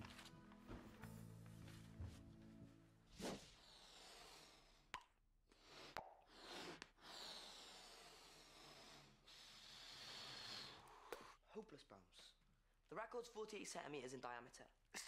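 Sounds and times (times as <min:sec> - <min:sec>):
breathy hiss blowing bubble: 0:05.6 - 0:11.1.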